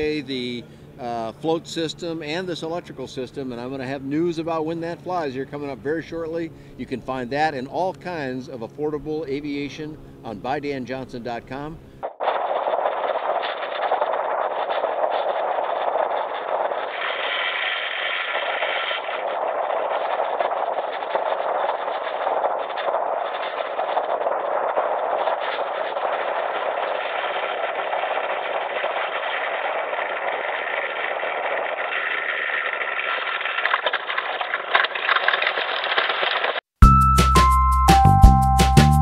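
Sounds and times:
high whine: 0.0s - 34.1s
aircraft propeller and motor noise: 0.0s - 36.6s
airflow rushing: 13.0s - 33.6s.

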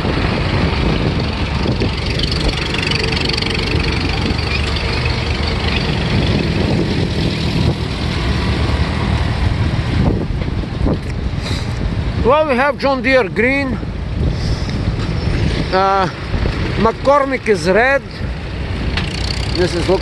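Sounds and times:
tractor engine running: 0.0s - 12.2s, 18.4s - 20.0s.

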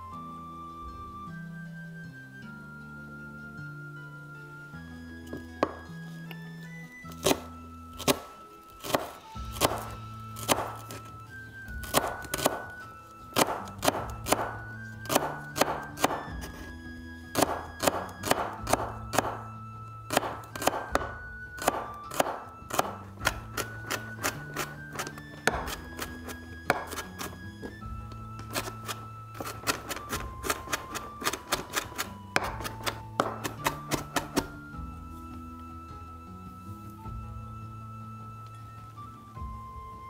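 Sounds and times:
background music: 0.0s - 40.0s
knife chopping on wooden board: 7.2s - 11.1s, 11.8s - 16.7s, 17.3s - 19.4s, 20.1s - 27.8s, 28.4s - 34.6s.

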